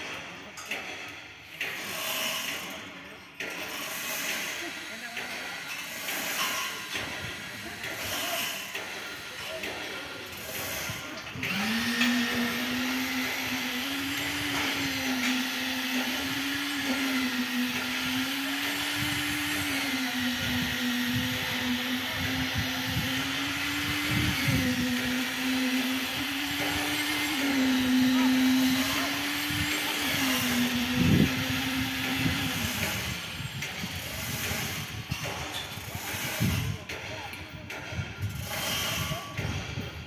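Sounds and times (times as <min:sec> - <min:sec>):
motor running: 0:05.9 - 0:36.7.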